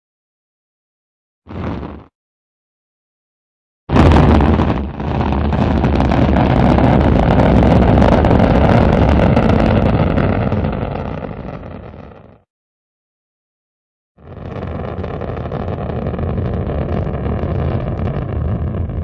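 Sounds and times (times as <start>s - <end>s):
rocket launch rumble: 1.5s - 2.1s, 3.9s - 12.4s, 14.2s - 19.0s.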